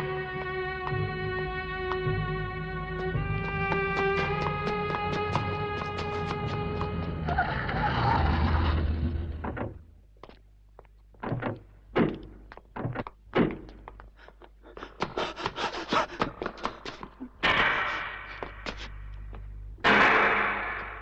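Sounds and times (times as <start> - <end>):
music: 0.0 - 7.8
running footsteps on hard floor: 3.2 - 7.2, 11.2 - 17.3.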